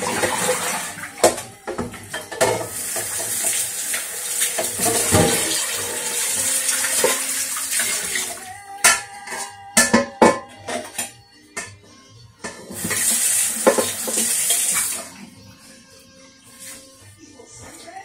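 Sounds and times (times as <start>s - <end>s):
tap running into sink: 0.0s - 8.3s, 12.7s - 15.1s
pan knocking against sink: 4.6s - 5.6s, 12.4s - 14.3s.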